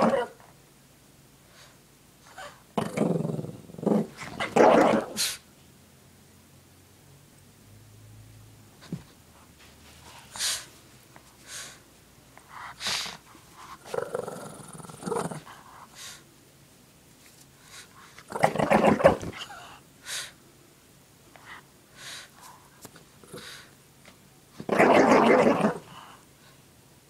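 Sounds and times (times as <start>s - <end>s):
dog growling: 0.0s - 0.4s, 2.3s - 5.4s, 12.8s - 15.6s, 18.3s - 19.6s, 24.6s - 26.1s.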